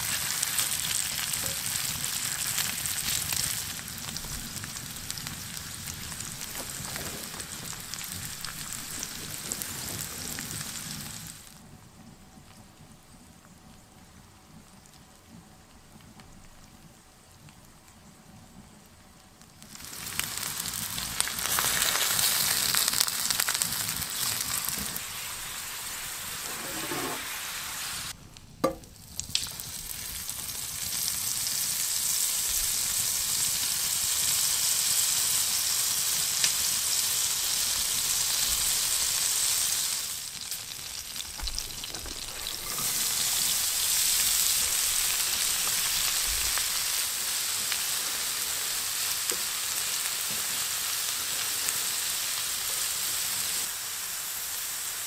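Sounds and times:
food sizzling in skillet: 0:00.0 - 0:11.6, 0:19.6 - 0:55.0
wooden spatula scraping pan: 0:26.4 - 0:27.5.

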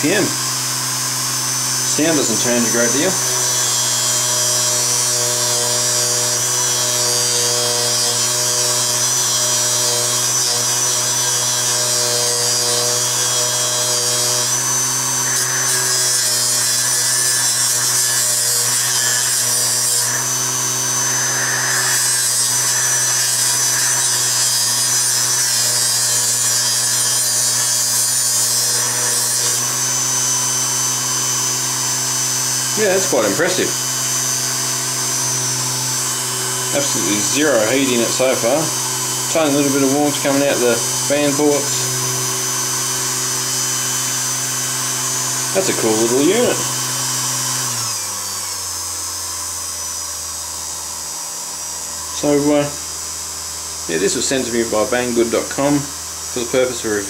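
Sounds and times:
polisher motor whining: 0:00.0 - 0:57.0
metal scratching on polishing wheel: 0:15.2 - 0:29.9, 0:32.7 - 0:33.8, 0:34.8 - 0:42.3, 0:45.5 - 0:46.7.

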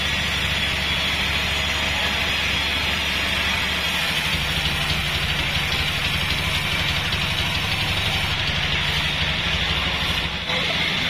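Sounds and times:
band saw machine drone: 0:00.0 - 0:11.0.

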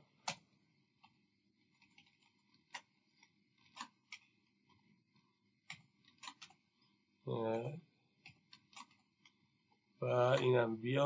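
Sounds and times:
computer keyboard keystrokes: 0:01.0 - 0:04.3, 0:05.6 - 0:06.6, 0:08.2 - 0:09.3.

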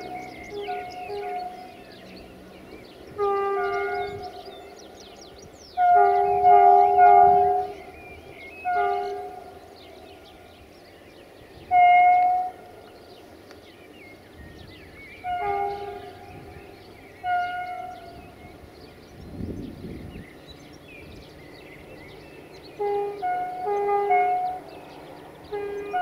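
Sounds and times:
locomotive air horn blasts: 0:00.0 - 0:05.0, 0:05.7 - 0:10.3, 0:11.6 - 0:12.8, 0:15.2 - 0:18.7, 0:22.7 - 0:26.0
birds chirping: 0:00.0 - 0:26.0.

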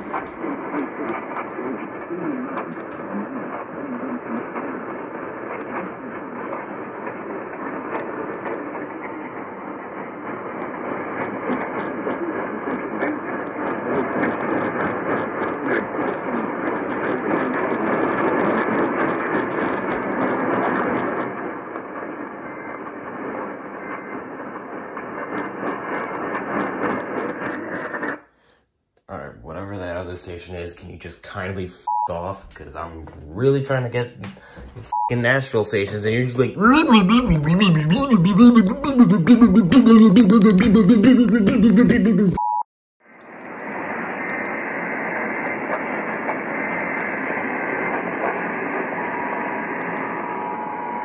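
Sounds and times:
radio static hiss: 0:00.0 - 0:28.2, 0:29.2 - 0:42.6, 0:43.2 - 0:51.0
crackling clicks: 0:43.2 - 0:50.1.

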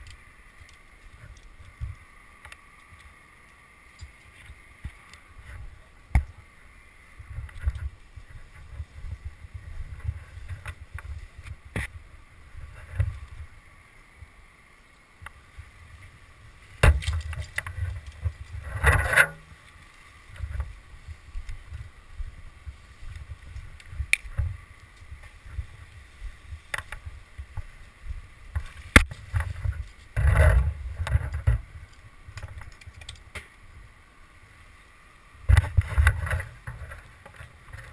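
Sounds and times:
low rumbling wind: 0:00.0 - 0:37.9
rustling scrapes: 0:17.0 - 0:21.1.

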